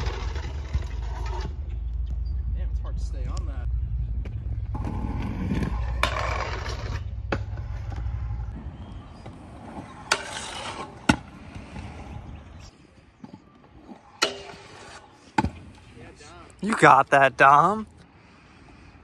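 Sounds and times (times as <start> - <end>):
grinding scrape: 0.0 - 1.6, 4.8 - 8.5, 10.1 - 11.0
scooter wheels rolling on concrete: 0.0 - 2.0, 4.2 - 18.1.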